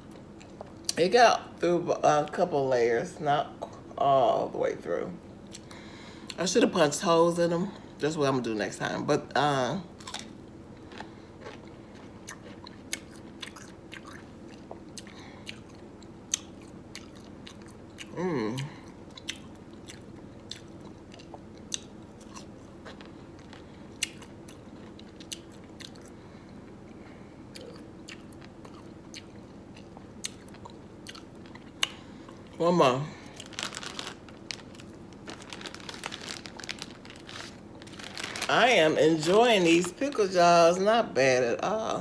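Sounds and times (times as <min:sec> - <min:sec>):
person chewing crunchy pickle: 0:10.0 - 0:26.2, 0:27.5 - 0:32.6, 0:33.2 - 0:38.5.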